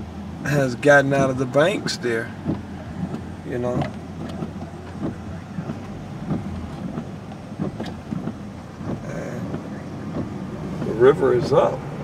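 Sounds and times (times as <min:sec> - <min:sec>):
car engine rumble: 0:00.0 - 0:12.0
tyres on wet road: 0:00.0 - 0:12.0.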